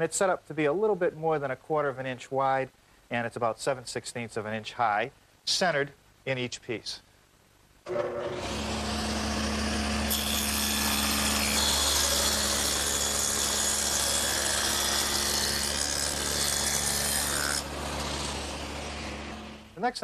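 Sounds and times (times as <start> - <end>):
saw cutting wood: 7.9 - 19.8
table saw running: 7.9 - 19.8.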